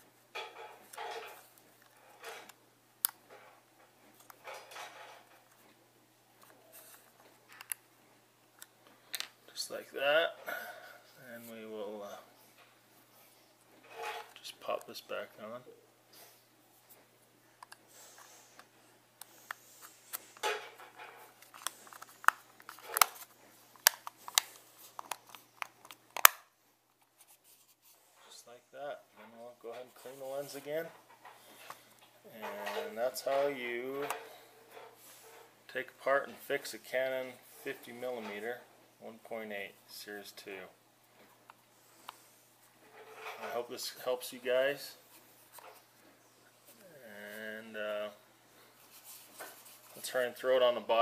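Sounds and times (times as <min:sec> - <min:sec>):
fingers handling lens: 0:17.6 - 0:26.4.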